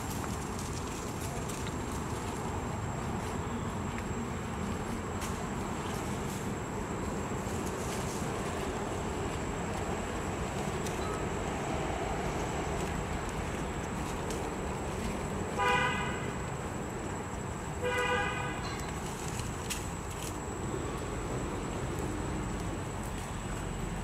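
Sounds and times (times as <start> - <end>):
background noise: 0.0 - 24.0
horn tooting: 15.6 - 16.4, 17.8 - 18.8.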